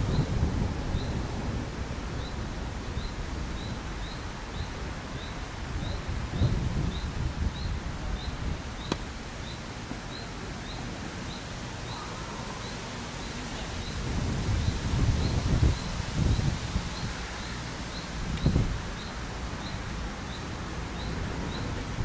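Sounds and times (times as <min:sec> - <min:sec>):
wind gusting on microphone: 0:00.0 - 0:22.0
sharp tap: 0:08.9 - 0:09.1.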